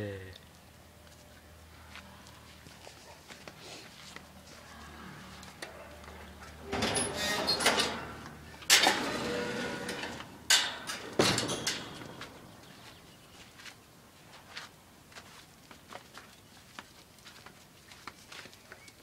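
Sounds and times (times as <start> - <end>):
wire-mesh fencing rattling: 6.7 - 12.7.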